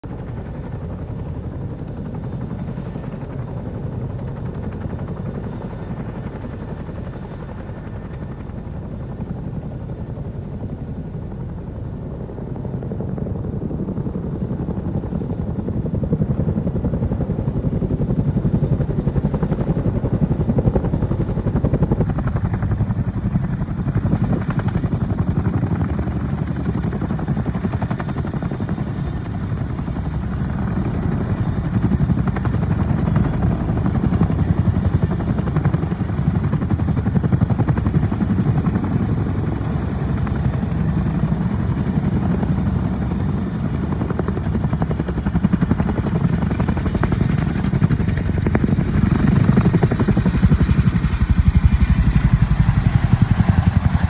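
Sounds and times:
helicopter rotor beat: 0.0s - 54.0s
turbine whine: 38.2s - 54.0s.

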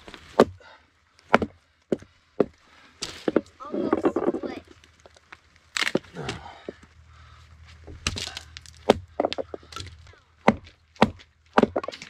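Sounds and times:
axe splitting log: 0.1s - 0.6s, 1.3s - 1.6s, 5.8s - 6.5s, 7.8s - 12.0s
wood cracking and splintering: 3.0s - 6.9s, 7.7s - 12.0s.

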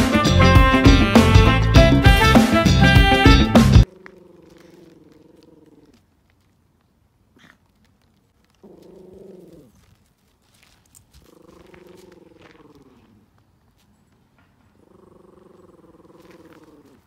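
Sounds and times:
dog growling: 3.9s - 6.0s, 8.6s - 9.8s, 11.2s - 13.2s, 14.8s - 17.0s.

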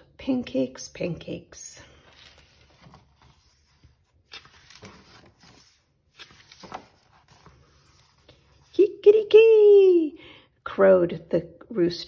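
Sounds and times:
paper book pages rustling: 1.9s - 8.8s.

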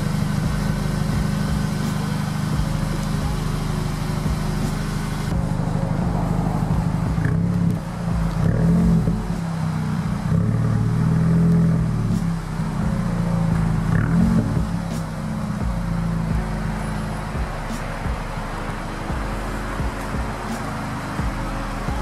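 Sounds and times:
car engine revving: 0.0s - 22.0s.

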